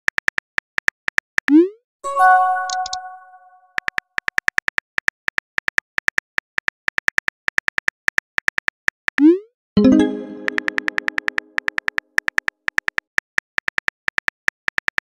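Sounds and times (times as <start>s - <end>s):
message chime: 2.0s - 3.7s, 9.8s - 11.5s
keyboard typing clicks: 2.2s - 4.5s, 9.2s - 13.0s.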